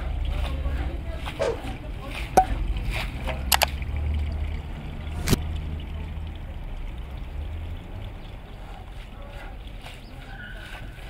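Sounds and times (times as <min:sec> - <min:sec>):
soapy water swishing and splashing: 0:08.0 - 0:11.0.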